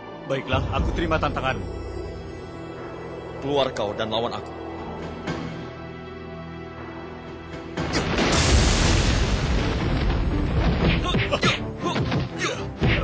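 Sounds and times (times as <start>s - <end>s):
tense film music: 0.0s - 13.0s
loud boom explosion: 8.0s - 10.8s.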